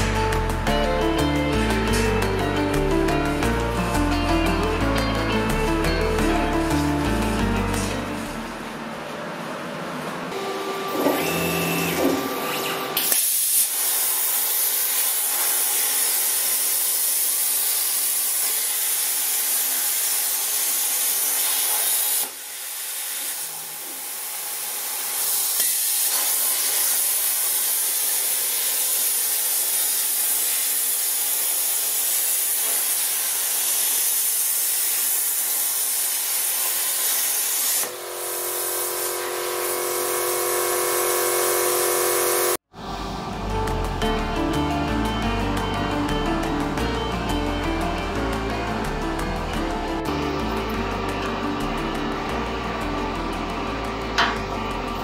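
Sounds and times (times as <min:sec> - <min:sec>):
multi-tone machine whine: 0:01.0 - 0:13.2, 0:37.8 - 0:55.0
plasma arc hissing: 0:10.7 - 0:42.6.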